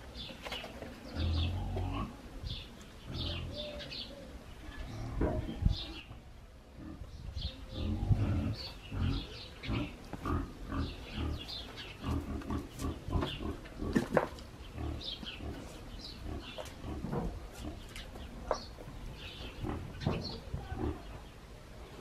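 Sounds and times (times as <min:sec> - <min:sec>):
low animal grunts: 0:07.7 - 0:17.9, 0:19.6 - 0:21.3.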